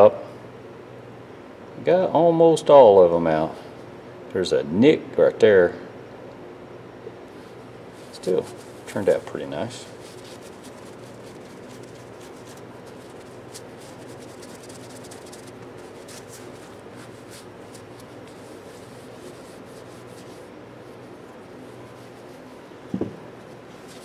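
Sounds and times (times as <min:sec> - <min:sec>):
steady low hum: 0:00.0 - 0:24.0
rubbing and handling of hand tools: 0:08.0 - 0:24.0
short thump: 0:22.9 - 0:23.3.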